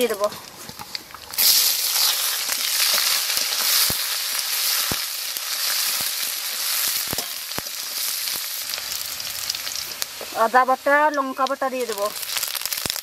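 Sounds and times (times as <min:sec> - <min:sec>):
onions sizzling in hot oil: 0:00.0 - 0:13.0
spatula stirring in pan: 0:00.2 - 0:10.5.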